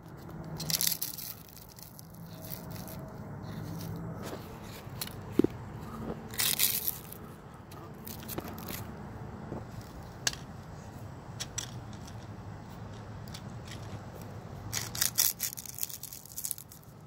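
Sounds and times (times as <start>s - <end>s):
dead leaves crunching underfoot: 0.3s - 8.9s, 14.7s - 17.0s.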